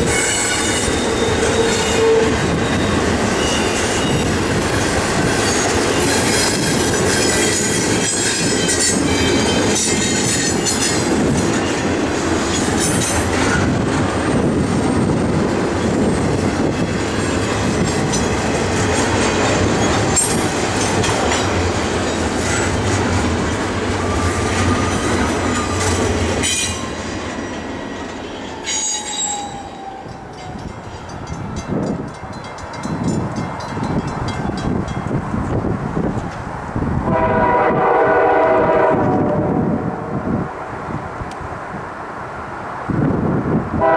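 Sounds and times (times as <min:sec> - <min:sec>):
wheel squeal: 0:00.0 - 0:04.4, 0:24.0 - 0:30.5
train wheels rumbling on rail: 0:00.0 - 0:43.9.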